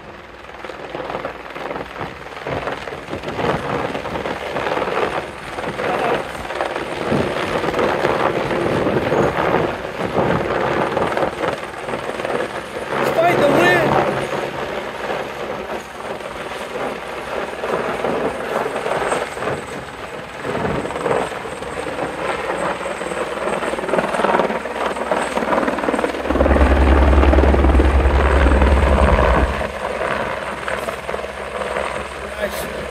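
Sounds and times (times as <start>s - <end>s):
helicopter rotor and engine: 0.0s - 32.9s
loud low rumble: 26.2s - 29.8s.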